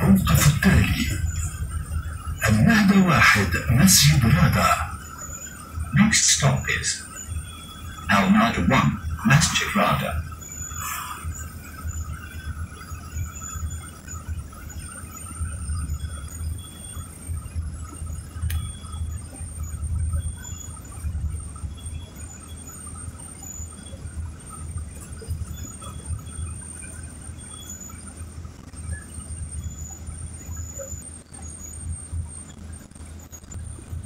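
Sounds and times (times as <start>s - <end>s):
bus engine and road rumble: 0.0s - 7.0s, 7.8s - 13.1s
faint high-pitched squeals: 0.0s - 34.0s.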